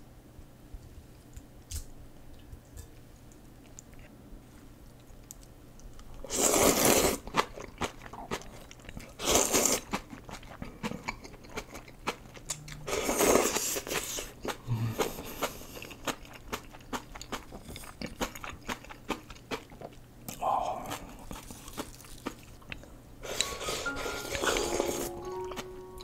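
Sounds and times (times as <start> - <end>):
person slurping noodles: 6.3 - 7.2, 12.8 - 15.9, 23.2 - 25.1
wet chewing clicks: 13.8 - 23.6.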